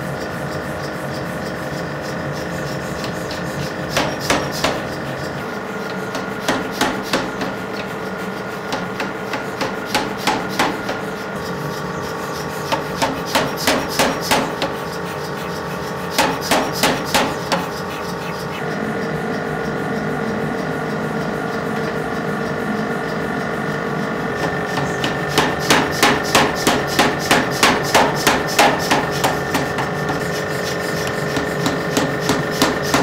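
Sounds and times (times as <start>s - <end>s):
steady hum: 0.0s - 33.0s.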